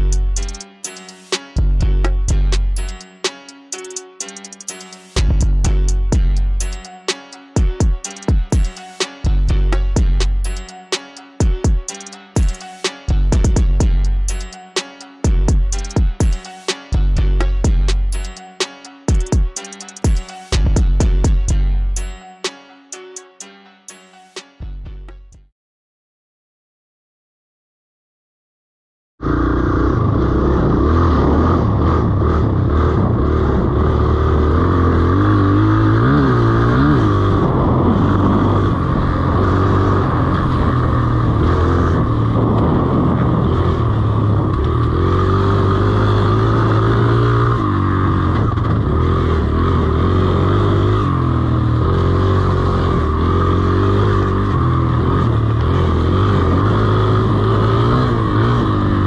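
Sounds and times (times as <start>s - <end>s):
dirt bike engine revving: 29.2s - 59.0s.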